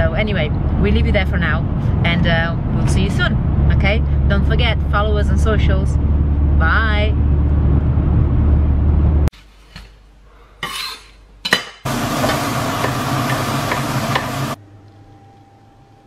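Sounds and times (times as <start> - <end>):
road rumble inside car: 0.0 - 9.3
meat sizzling: 11.9 - 14.6.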